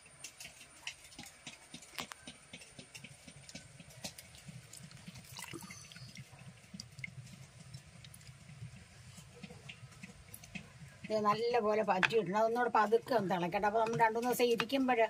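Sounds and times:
coconut milk being poured: 0:04.0 - 0:10.4.

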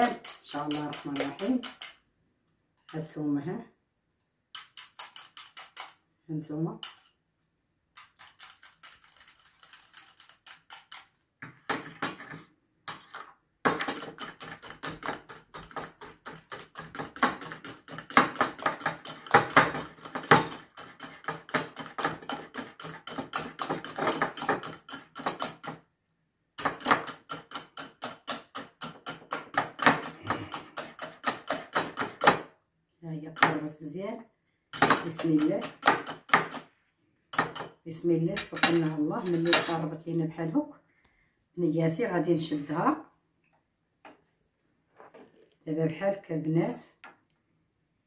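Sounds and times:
wire whisk beating in a bowl: 0:00.0 - 0:02.0, 0:13.9 - 0:25.8, 0:26.6 - 0:32.4.

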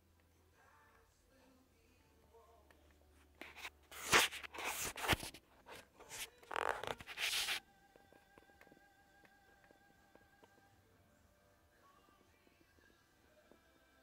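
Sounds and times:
rubbing on microphone: 0:03.2 - 0:07.6
faint high hum: 0:07.6 - 0:14.0.

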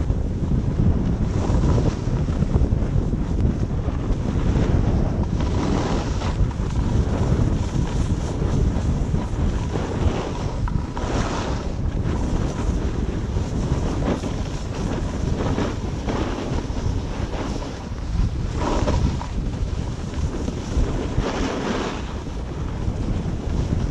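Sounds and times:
wind buffeting microphone: 0:00.0 - 0:23.9
snow scraping under skis: 0:00.6 - 0:23.9.

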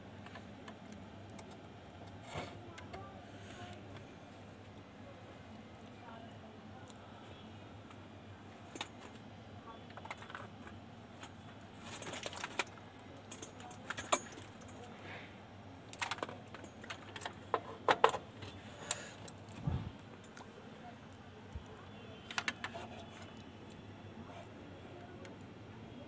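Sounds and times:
hands handling electronics and cables: 0:07.8 - 0:14.9, 0:15.8 - 0:25.6.

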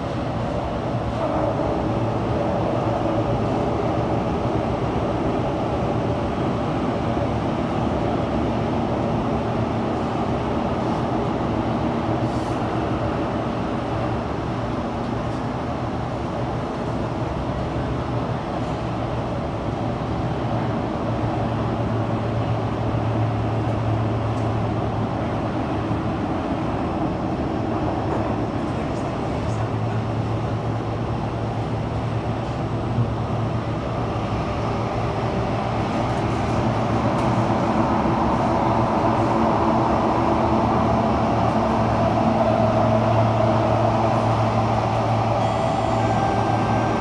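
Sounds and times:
metro train rumble and wheel noise: 0:00.0 - 0:47.0.

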